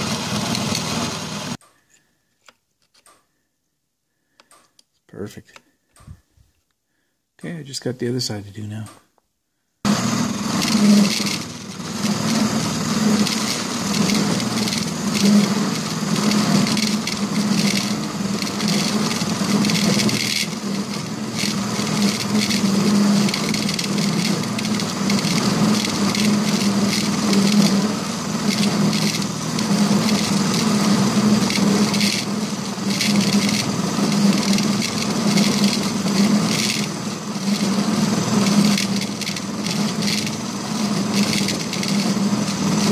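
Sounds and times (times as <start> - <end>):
milling machine hum: 0.0 - 1.6, 9.9 - 42.9
metal cutting chatter: 10.5 - 42.9.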